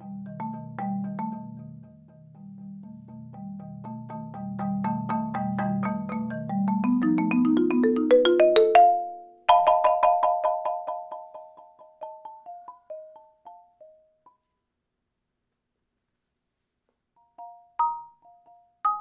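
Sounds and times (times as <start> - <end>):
marimba bass roll: 0.0 - 13.5
marimba notes: 0.0 - 14.2, 17.2 - 19.0.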